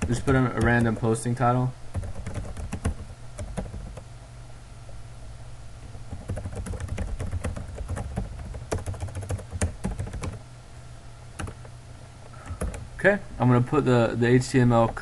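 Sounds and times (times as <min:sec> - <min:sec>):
keyboard typing clicks: 0:00.0 - 0:01.1, 0:02.0 - 0:04.0, 0:06.1 - 0:10.4, 0:11.4 - 0:11.7, 0:12.4 - 0:12.8
low steady hum: 0:00.0 - 0:15.0.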